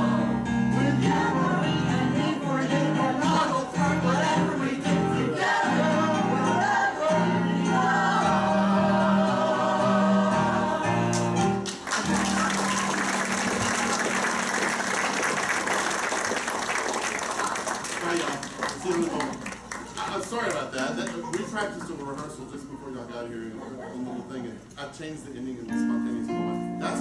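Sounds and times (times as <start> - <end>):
show tune singing with accompaniment: 0.0 - 12.2
audience applause: 11.1 - 22.5.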